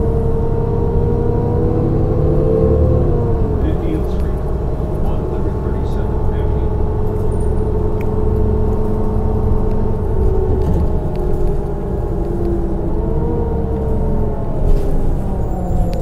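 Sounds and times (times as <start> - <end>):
bus engine low rumble: 0.0 - 16.0
drivetrain whine: 0.0 - 16.0.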